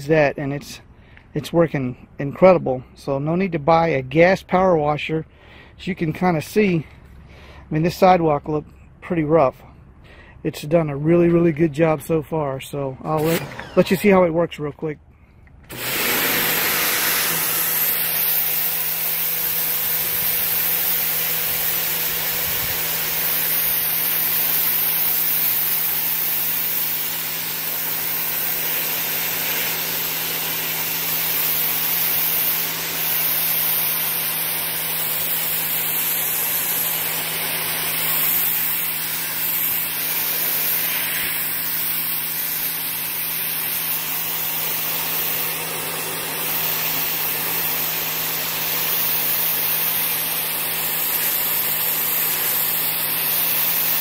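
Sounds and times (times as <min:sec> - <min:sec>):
pressure washer motor humming: 0:13.1 - 0:14.5, 0:15.6 - 0:54.0
water jet hissing on concrete: 0:15.7 - 0:54.0.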